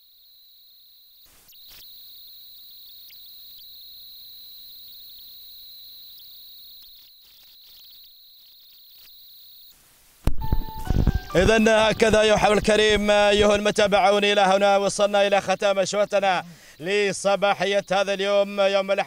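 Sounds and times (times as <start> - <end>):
insects buzzing: 0.0 - 19.0
loud music: 10.4 - 12.6.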